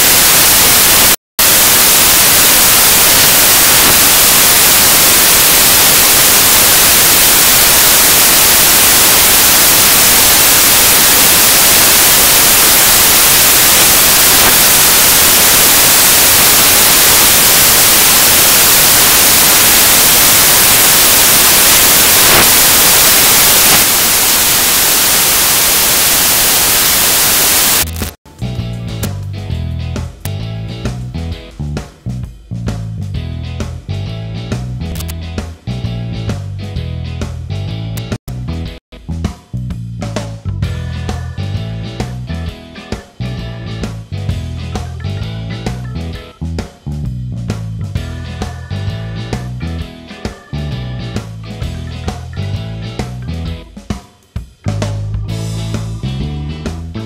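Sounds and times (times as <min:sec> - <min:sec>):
static hiss: 0:00.0 - 0:28.2
music with bass and guitar: 0:26.3 - 0:57.0.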